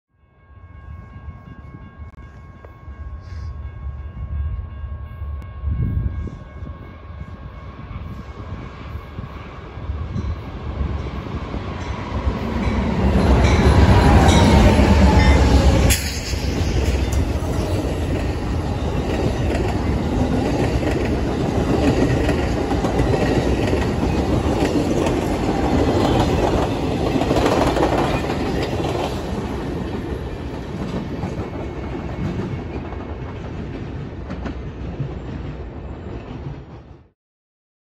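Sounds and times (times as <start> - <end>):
train wheels rolling on rails: 7.2 - 37.1.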